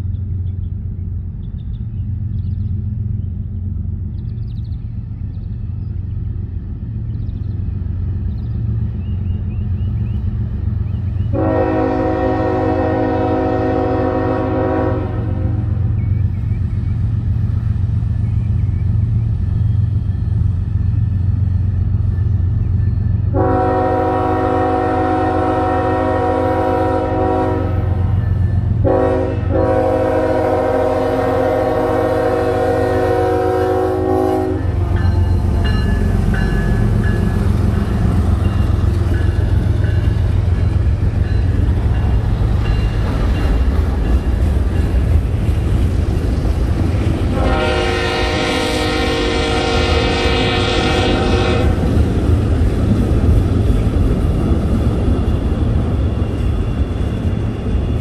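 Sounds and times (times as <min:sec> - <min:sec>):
diesel locomotive engine rumble: 0:00.0 - 0:58.0
train chime horn blasts: 0:11.3 - 0:15.9, 0:23.3 - 0:37.3, 0:47.3 - 0:51.9.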